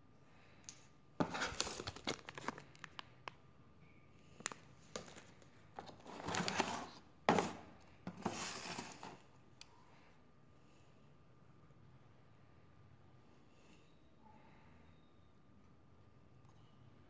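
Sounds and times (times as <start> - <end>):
plastic tray crackle: 1.2 - 3.1
packaging rustling and crinkling: 1.2 - 3.4, 4.4 - 9.2.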